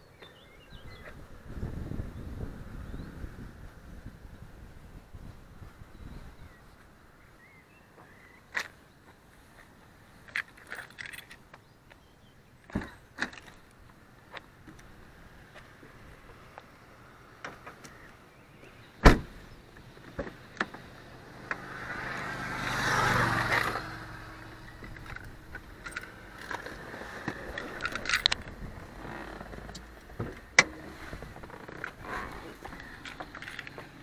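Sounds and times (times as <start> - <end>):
car door slamming: 19.0 - 19.4
sharp thud: 19.0 - 19.4
rushing with low hum: 20.7 - 34.0.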